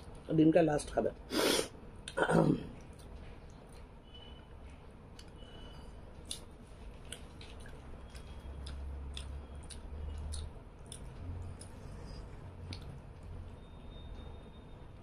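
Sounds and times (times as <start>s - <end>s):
low steady hum: 0.0s - 15.0s
wet chewing clicks: 6.2s - 13.7s.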